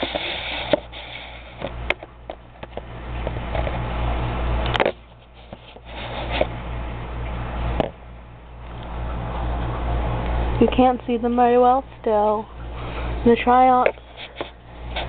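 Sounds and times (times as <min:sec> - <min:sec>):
rubbing and rustling: 0:00.0 - 0:02.4, 0:04.8 - 0:06.6, 0:13.9 - 0:15.0
low steady hum: 0:00.0 - 0:15.0.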